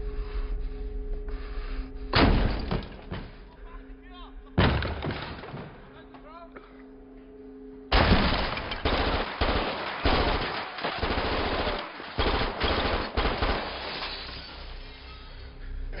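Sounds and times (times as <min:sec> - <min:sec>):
automatic gunfire bursts: 0:07.9 - 0:13.8.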